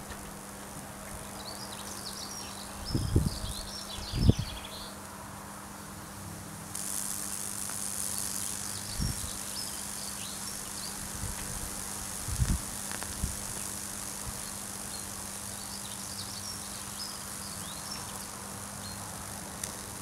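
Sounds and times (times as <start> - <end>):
electric arcing crackle and sizzle: 0.0 - 4.6, 6.6 - 20.0
loud hiss: 6.7 - 20.0.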